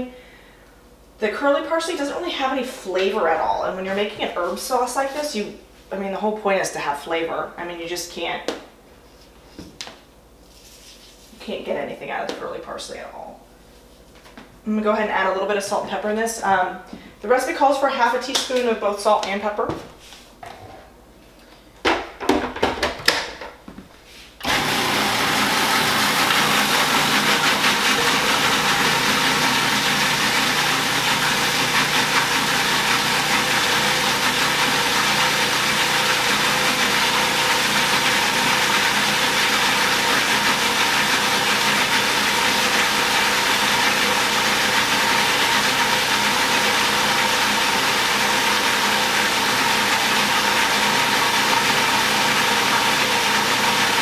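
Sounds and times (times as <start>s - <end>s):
food processor running: 24.4s - 54.0s.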